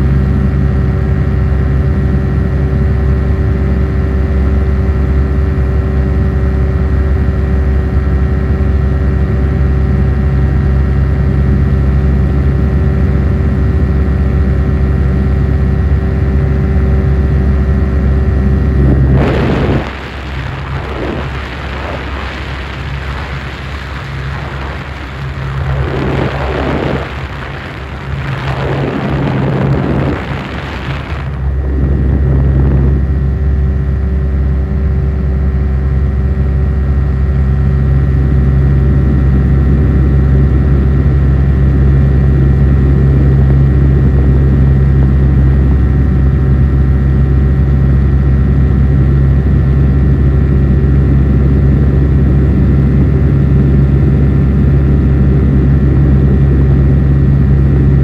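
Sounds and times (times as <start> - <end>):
propeller aircraft engine drone: 0.0 - 58.0
rushing noise sweeping in pitch: 18.0 - 33.2.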